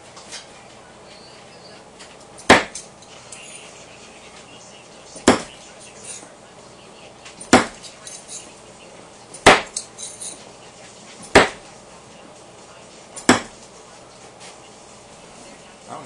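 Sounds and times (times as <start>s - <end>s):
knives striking wooden target: 2.4s - 2.9s, 5.2s - 5.5s, 7.4s - 7.8s, 9.4s - 9.8s, 11.3s - 11.6s, 13.2s - 13.6s.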